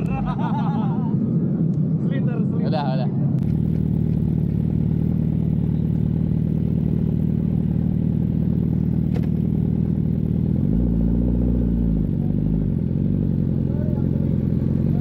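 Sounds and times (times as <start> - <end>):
motorcycle engine revving: 3.4 - 15.0.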